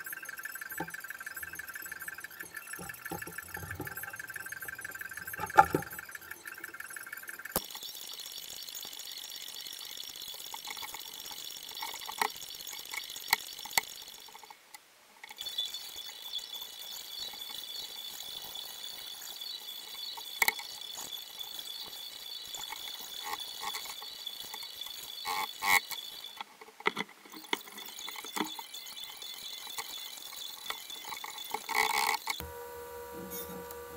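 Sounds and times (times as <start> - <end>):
steady high hiss: 32.4 - 33.9.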